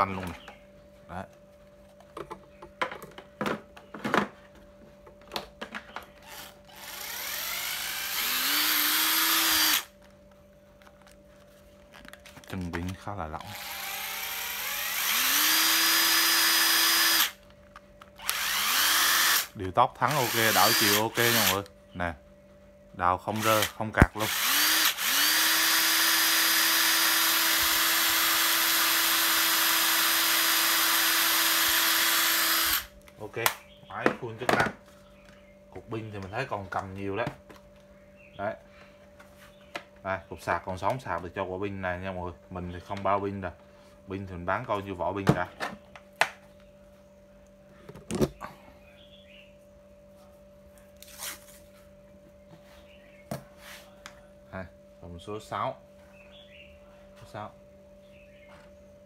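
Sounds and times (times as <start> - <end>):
impact driver motor whine: 6.1 - 10.1, 13.4 - 17.4, 18.1 - 21.7, 23.3 - 32.9.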